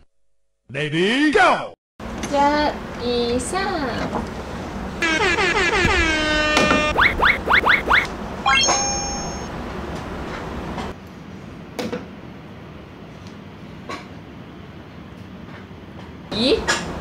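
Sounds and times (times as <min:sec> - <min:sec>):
whistle tone sliding down: 0:05.0 - 0:09.5
quick rising swoops: 0:05.5 - 0:09.2
short bright ding: 0:08.5 - 0:09.5.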